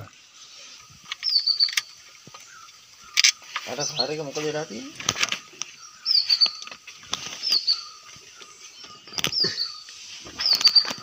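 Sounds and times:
bird whistled call: 1.2s - 1.9s, 5.8s - 6.7s, 7.4s - 11.0s.

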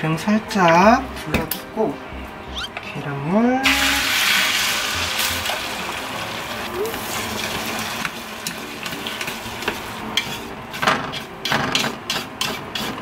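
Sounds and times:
egg sizzling in a pan: 3.6s - 10.0s
chopsticks scraping a pan: 8.4s - 13.0s.

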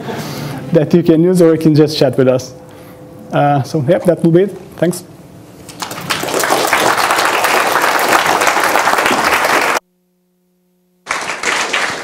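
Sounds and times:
audience applauding: 5.7s - 9.8s, 11.0s - 12.0s.

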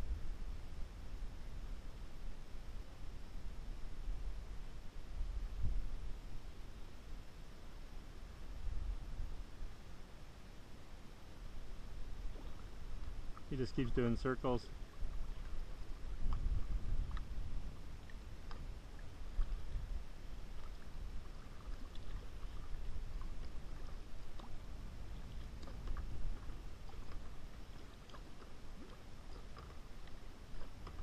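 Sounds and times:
steady low rumble: 0.0s - 30.8s
paddle splashes and drips: 12.0s - 31.0s.

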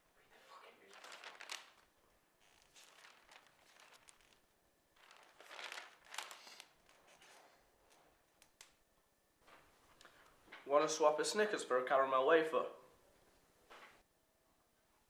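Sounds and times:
newspaper pages rustling: 0.8s - 8.0s.

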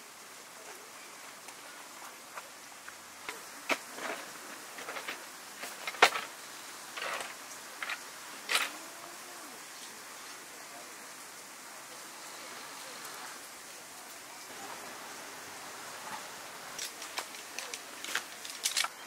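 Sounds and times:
folding table clacking: 3.2s - 6.3s.

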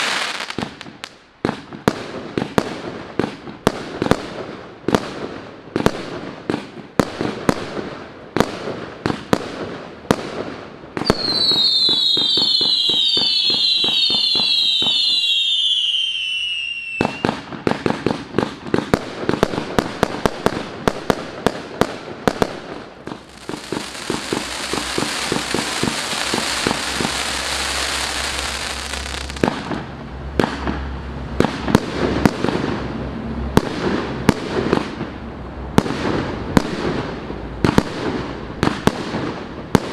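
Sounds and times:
dense fireworks crackling: 0.0s - 39.9s
fireworks launch bangs and bursts: 0.0s - 39.9s
shrill descending fireworks whistles: 11.0s - 17.4s, 23.3s - 29.4s.

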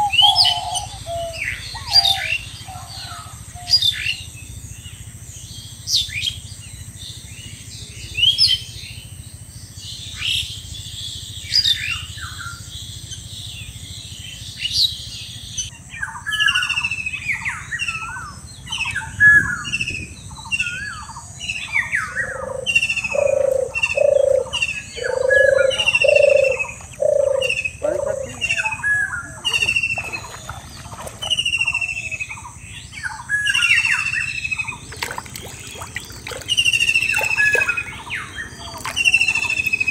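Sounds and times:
bird hooting low notes: 0.0s - 4.3s, 16.4s - 39.9s
birds chirping and whistling: 0.0s - 39.9s.

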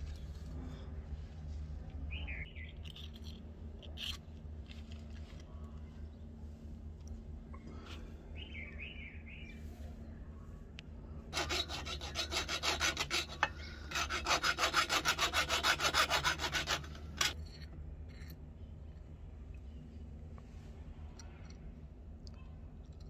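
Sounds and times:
file scraping steel blade: 11.3s - 17.4s.

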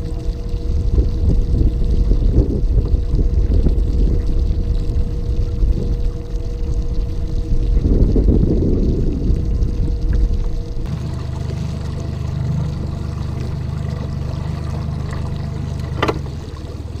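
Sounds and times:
wind rumble: 0.0s - 10.9s
boat motor humming: 0.0s - 17.0s
water against hull: 0.0s - 17.0s.

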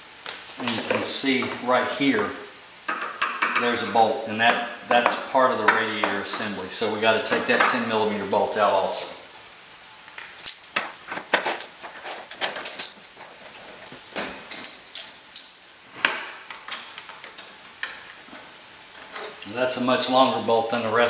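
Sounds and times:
metal tools clinking: 11.4s - 13.4s.

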